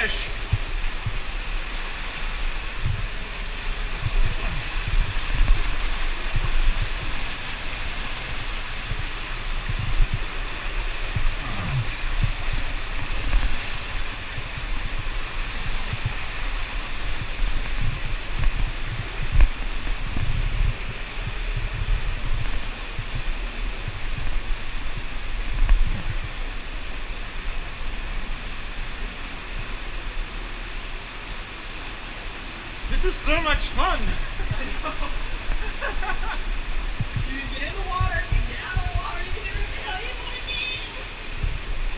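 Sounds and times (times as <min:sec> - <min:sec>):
flowing water rushing: 0:00.0 - 0:41.9
low thumps and knocks: 0:00.4 - 0:01.7, 0:02.5 - 0:26.6, 0:36.8 - 0:37.3.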